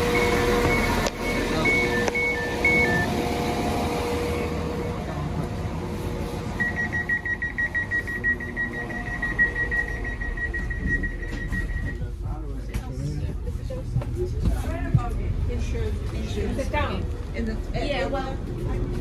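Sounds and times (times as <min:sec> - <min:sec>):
rapid warning beeps: 0:00.0 - 0:03.2, 0:06.6 - 0:12.0
two-tone door chime: 0:00.0 - 0:03.2, 0:06.6 - 0:12.0.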